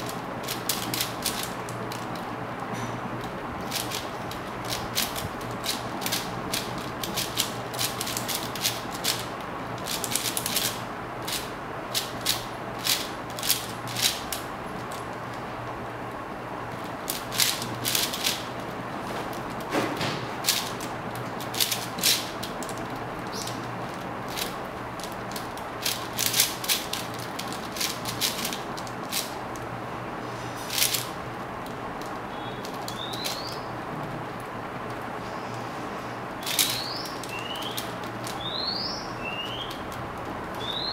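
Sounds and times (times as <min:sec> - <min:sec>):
plastic puzzle cube clicking: 0:00.0 - 0:02.2, 0:04.6 - 0:14.9, 0:17.1 - 0:18.4, 0:20.4 - 0:29.4, 0:30.7 - 0:31.1, 0:36.4 - 0:38.4
steady low hum: 0:00.0 - 0:40.9.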